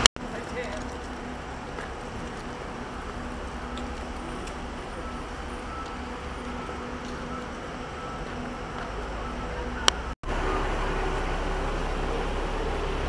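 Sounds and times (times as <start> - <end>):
footsteps: 0.0 - 9.3
buses idling: 0.0 - 13.0.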